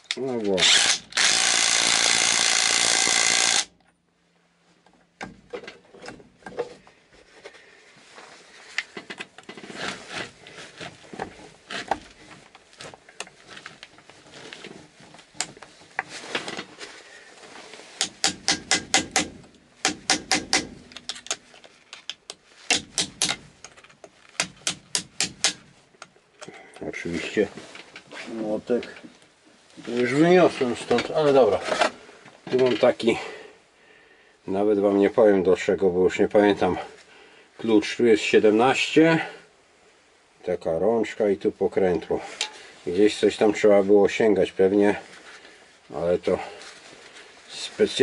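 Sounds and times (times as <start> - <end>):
cordless drill spinning: 0.6 - 3.7
hand tools clicking on metal: 18.0 - 26.2.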